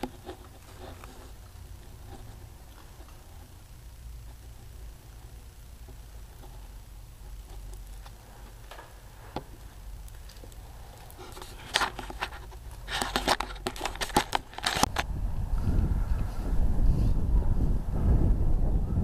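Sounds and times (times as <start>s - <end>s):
faint low hum: 0.0s - 19.0s
close clicks taps and rustles: 5.8s - 15.1s.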